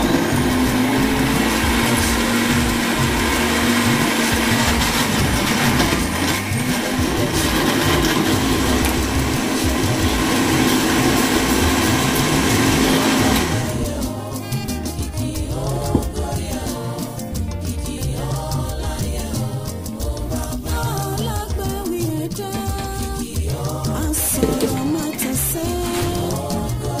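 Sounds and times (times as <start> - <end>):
blender running: 0.0 - 14.1.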